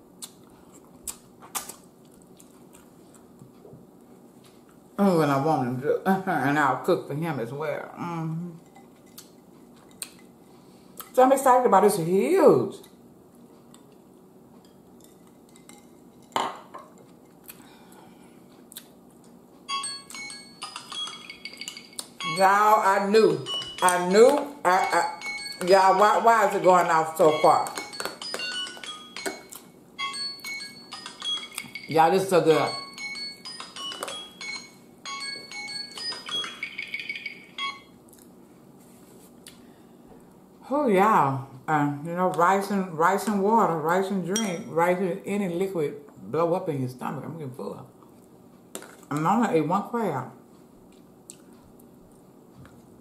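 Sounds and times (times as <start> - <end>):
dishes and cutlery clinking: 14.6 - 17.4, 19.9 - 22.4
phone chime melody: 19.7 - 26.6, 27.2 - 38.0.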